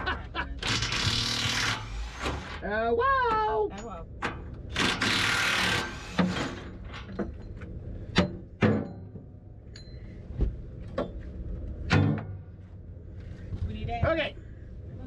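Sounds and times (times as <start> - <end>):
metallic knocks and clanks: 6.2 - 12.6.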